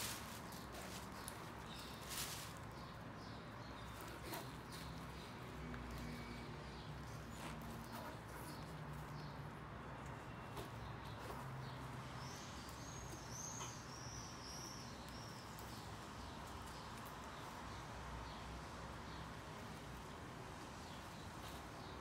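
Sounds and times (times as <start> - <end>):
bird chirping: 0.0 - 18.5
gloved hands rubbing on rubber: 3.7 - 5.2.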